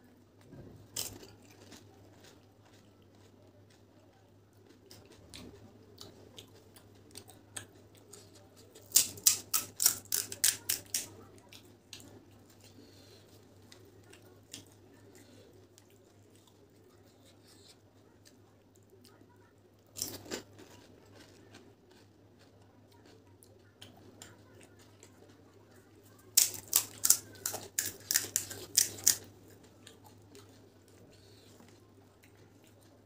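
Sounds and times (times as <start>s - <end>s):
crisp shells crunching when chewed: 0.9s - 4.0s, 4.6s - 12.9s, 19.9s - 25.4s, 26.3s - 33.0s.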